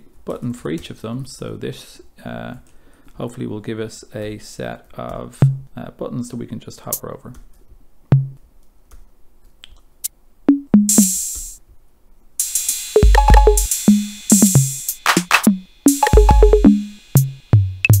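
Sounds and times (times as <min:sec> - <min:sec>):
deep drum thumps: 0:05.4 - 0:05.7, 0:08.1 - 0:08.4, 0:16.0 - 0:16.8
drum machine hits: 0:05.4 - 0:05.7, 0:08.1 - 0:08.4, 0:10.5 - 0:11.6, 0:12.4 - 0:18.0
cymbal sounds: 0:10.9 - 0:11.6, 0:12.4 - 0:18.0.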